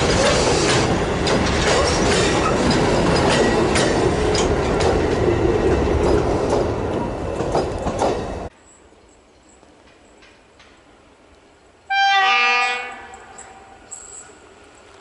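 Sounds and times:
wheels clattering over rail joints: 0.0 - 8.5
freight train wheels rumbling: 0.0 - 8.6.

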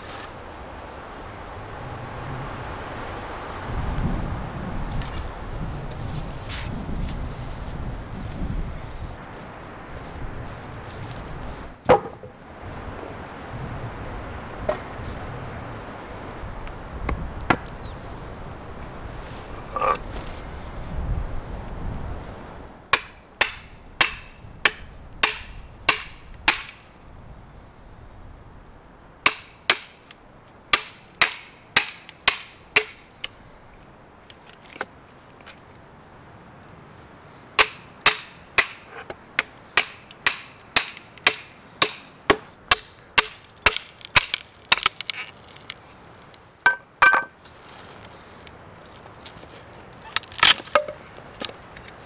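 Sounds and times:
hammer striking axe head: 22.9 - 26.8, 29.3 - 30.0, 30.8 - 33.0, 37.6 - 38.8, 39.4 - 44.4.

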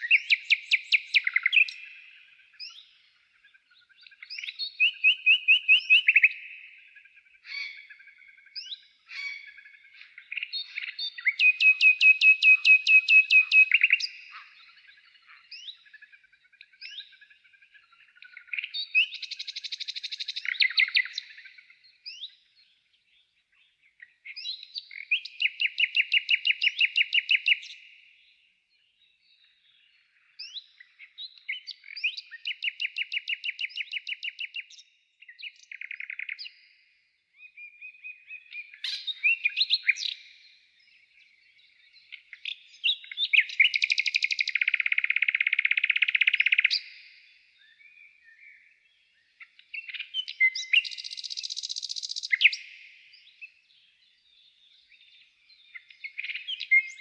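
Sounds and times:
bird chirps and whistles: 0.0 - 2.0, 4.3 - 6.7, 10.6 - 14.2, 42.8 - 47.0, 49.7 - 52.8, 55.8 - 57.0
songbird fast trill: 0.0 - 2.9, 7.4 - 14.6, 42.1 - 47.2, 49.4 - 53.3.

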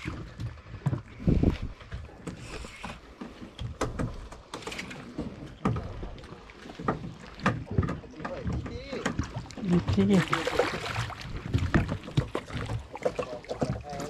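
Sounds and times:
knocks and thumps on a boat: 0.0 - 14.0.

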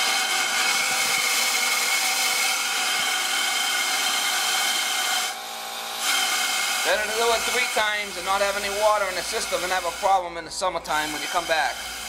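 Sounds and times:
compressed air rushing through pipes: 6.0 - 12.0.

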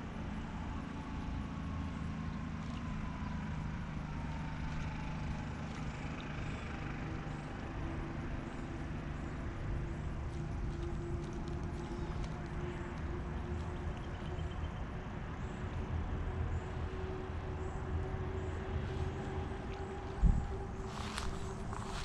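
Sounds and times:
low motor hum: 0.0 - 22.0.

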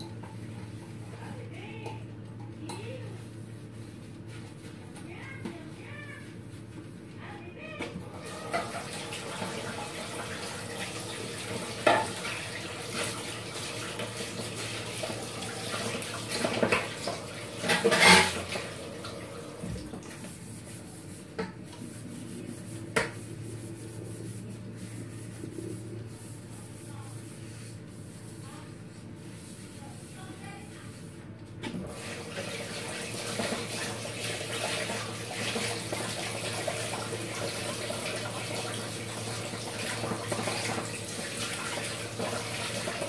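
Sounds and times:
water running in sink: 0.0 - 43.0
dishes and cutlery clattering: 17.6 - 18.5.

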